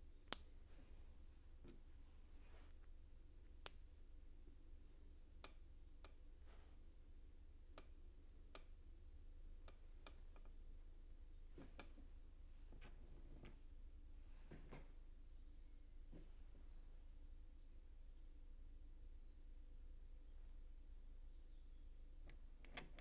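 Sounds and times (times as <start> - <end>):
faint low hum: 0.0 - 23.0.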